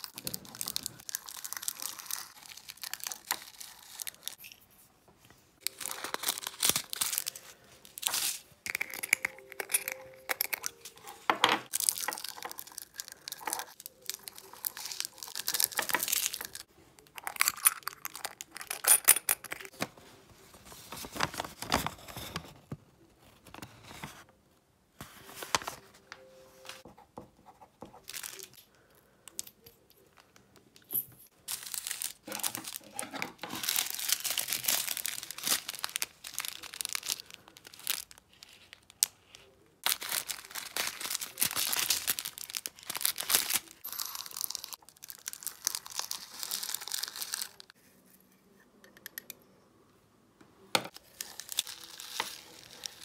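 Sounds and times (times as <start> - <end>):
plastic bags crinkling: 0.0 - 4.4, 5.6 - 18.8, 31.3 - 47.8, 50.9 - 53.0
beads poured into glass jars: 5.7 - 19.7, 31.0 - 33.0, 39.9 - 47.7.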